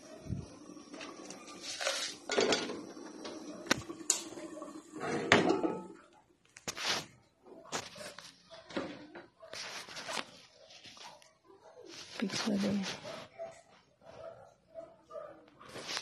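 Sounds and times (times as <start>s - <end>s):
pots and dishes clattering: 0.8s - 6.1s.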